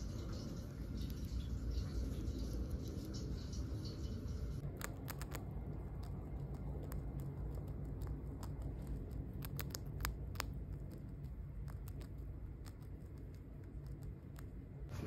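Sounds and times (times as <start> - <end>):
hamster chewing dry food: 4.6 - 15.0.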